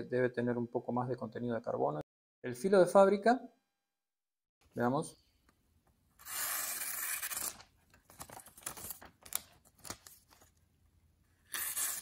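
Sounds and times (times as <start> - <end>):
knife slicing paper: 11.5 - 12.0.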